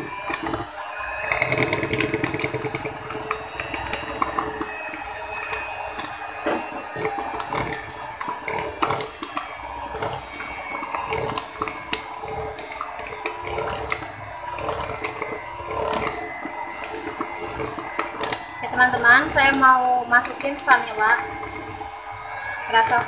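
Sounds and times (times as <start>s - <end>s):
electric hand mixer running: 0.0s - 23.0s
beaters knocking in plastic bowl: 1.3s - 22.0s.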